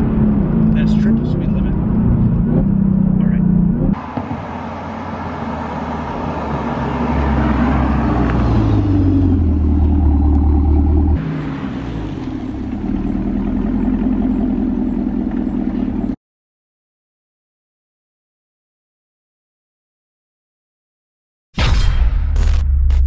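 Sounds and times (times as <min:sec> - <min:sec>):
car engine with deep exhaust: 0:00.0 - 0:16.2.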